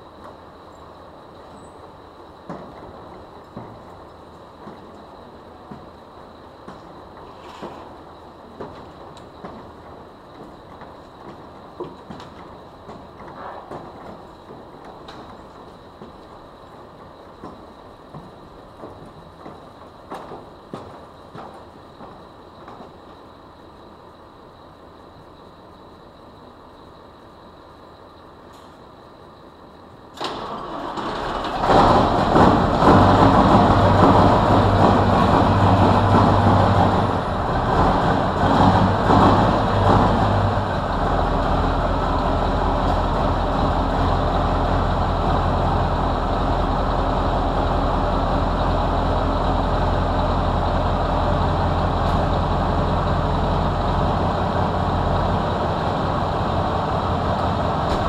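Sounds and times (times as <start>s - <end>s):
diesel engine cranking and starting: 30.1s - 58.0s
diesel engine idling: 30.3s - 58.0s.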